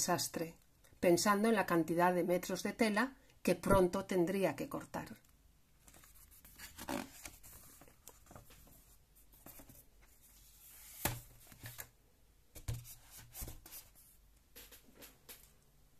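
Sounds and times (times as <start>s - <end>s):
pages rustling: 5.8s - 11.9s.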